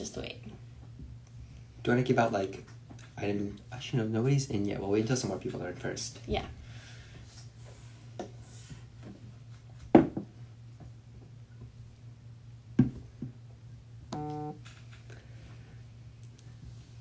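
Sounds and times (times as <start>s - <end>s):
low hum: 13.5s - 17.0s
short flat buzz: 14.1s - 14.6s.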